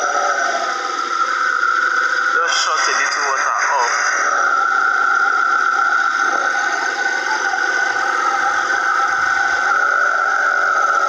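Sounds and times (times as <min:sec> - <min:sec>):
high-pitched whine: 0:00.0 - 0:11.0.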